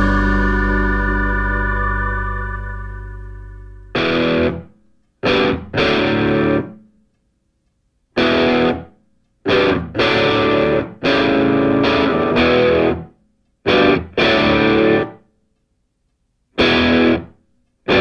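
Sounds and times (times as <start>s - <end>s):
chopped chord music: 0.0s - 4.5s.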